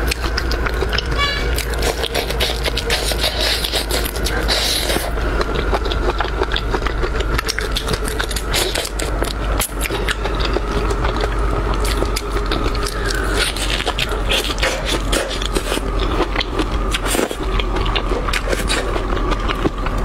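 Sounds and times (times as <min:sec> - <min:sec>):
food being chewed: 0:00.0 - 0:20.0
shells crunching and cracking: 0:00.0 - 0:20.0.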